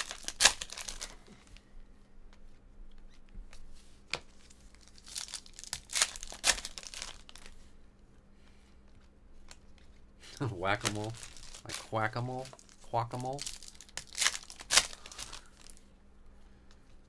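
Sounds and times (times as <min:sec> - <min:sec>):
foil wrapper crinkling and tearing: 0:00.0 - 0:01.3, 0:04.7 - 0:07.6, 0:10.4 - 0:15.8.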